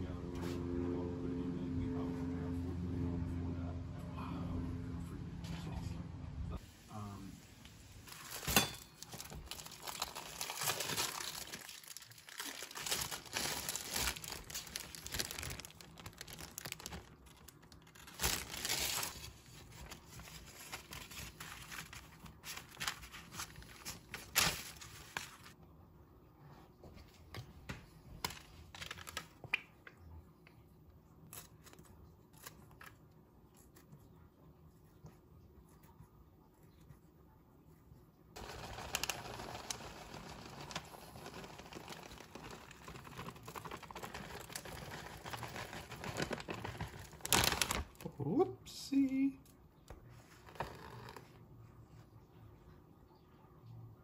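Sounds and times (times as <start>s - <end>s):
parchment paper crinkling: 8.0s - 25.6s, 27.3s - 29.7s, 38.4s - 48.1s.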